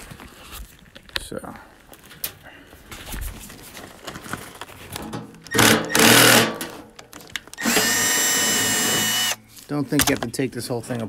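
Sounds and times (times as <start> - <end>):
cordless drill whining: 5.5 - 6.4, 7.5 - 9.4.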